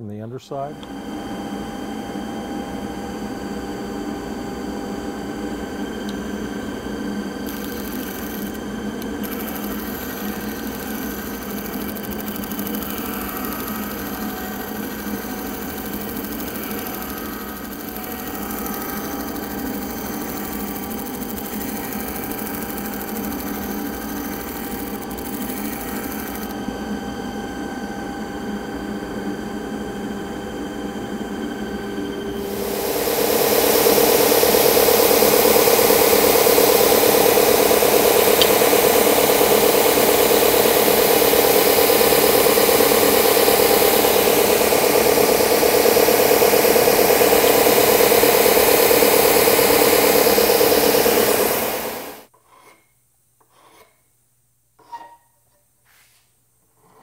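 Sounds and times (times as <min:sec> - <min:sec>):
disc sander motor running: 0:00.8 - 0:27.8, 0:31.5 - 0:52.3
wood sanding hiss: 0:09.1 - 0:26.5, 0:32.4 - 0:52.2.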